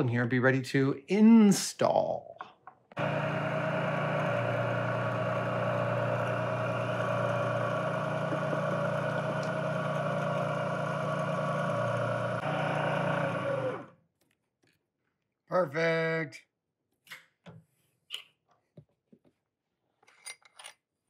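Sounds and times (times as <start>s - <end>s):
milling machine running: 3.0s - 13.9s.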